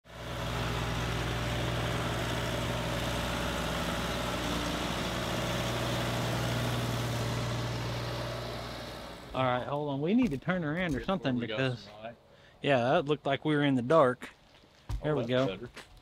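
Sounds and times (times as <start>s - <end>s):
tractor engine running: 0.0s - 11.9s.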